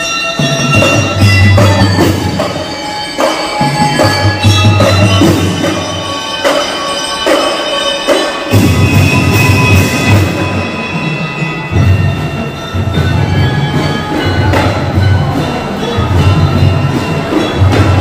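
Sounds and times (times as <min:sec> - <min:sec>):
bell lyres melody: 0:00.0 - 0:18.0.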